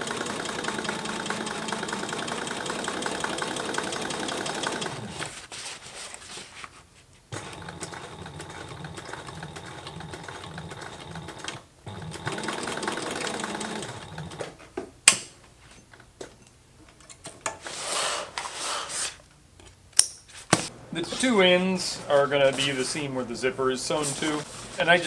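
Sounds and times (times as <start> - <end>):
sewing machine clicks: 0.0 - 5.3, 7.4 - 14.5
sewing machine stitching: 0.0 - 5.4, 7.4 - 14.6.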